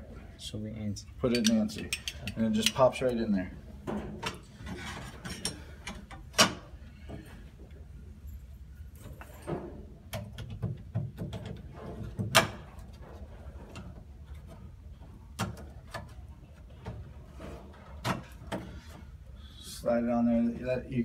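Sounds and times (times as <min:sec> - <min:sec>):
metal lock hardware clicks: 0:01.2 - 0:02.9.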